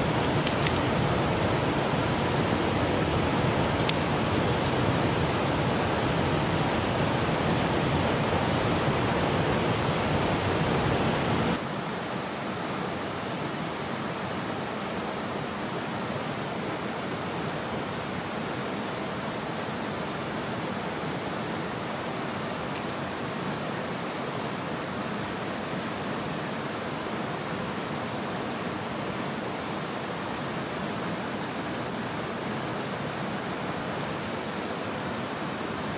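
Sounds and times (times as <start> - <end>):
river water rushing: 0.0 - 35.9.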